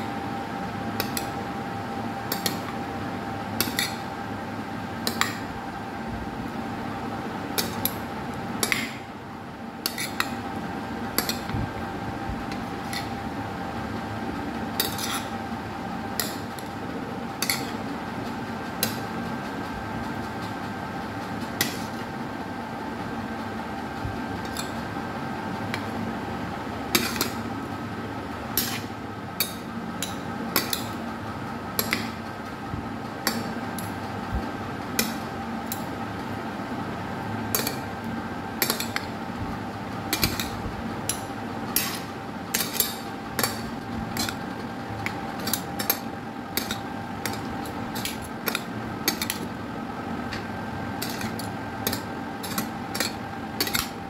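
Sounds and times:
steady background hum: 0.0 - 54.0
metal spoons clinking on plate: 38.6 - 39.1, 46.6 - 49.4, 51.0 - 54.0.

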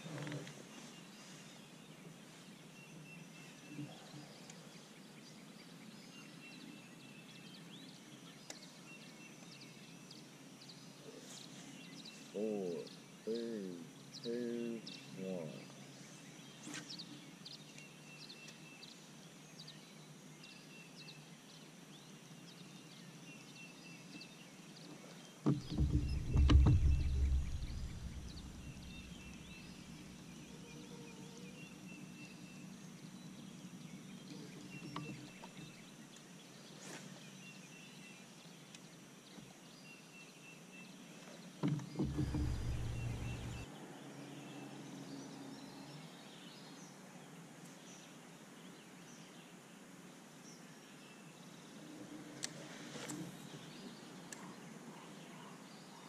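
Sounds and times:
small birds chirping: 0.0 - 56.0
knock: 25.5 - 29.3, 41.6 - 43.6
low rumble: 25.7 - 30.2, 42.1 - 43.6.

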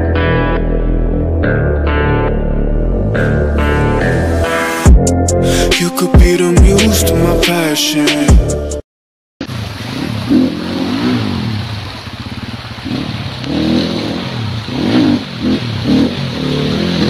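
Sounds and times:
water splashing: 9.4 - 17.0
dirt bike engine revving: 9.5 - 17.0.

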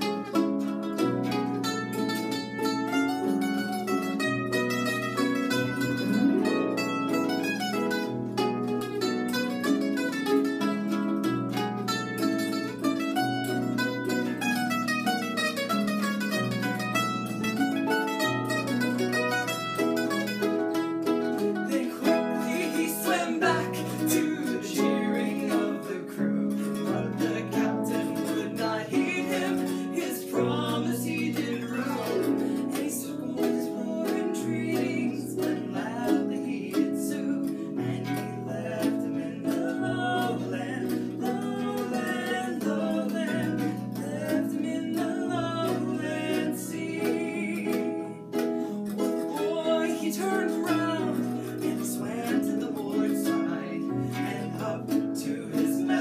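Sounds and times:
harp plucking: 0.0 - 56.0
mandolin picking: 0.0 - 56.0
voices singing: 21.5 - 48.2, 49.0 - 56.0.

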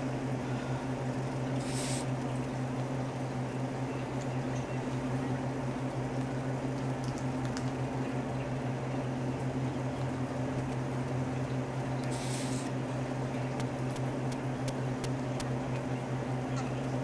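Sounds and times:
steady low hum: 0.0 - 17.0
even hiss: 1.6 - 2.2, 12.1 - 12.7.

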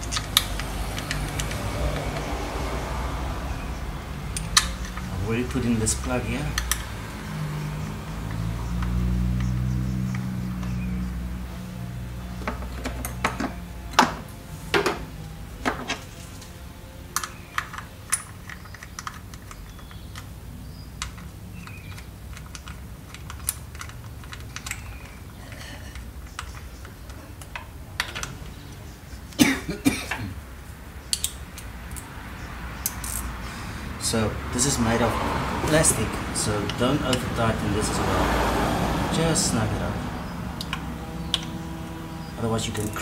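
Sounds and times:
plastic and metal parts clicking: 17.1 - 20.4, 21.0 - 28.5.

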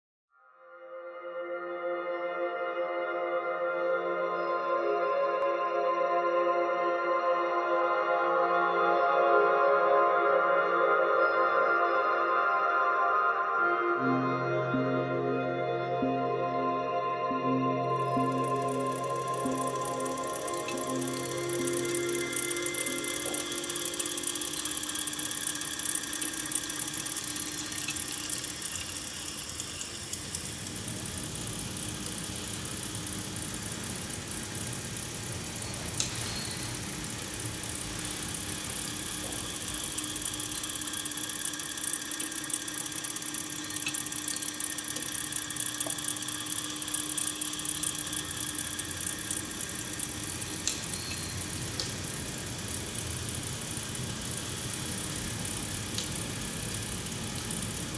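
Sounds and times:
motor whirring with high whine: 17.9 - 57.9
light mechanical clicks: 18.0 - 57.9.

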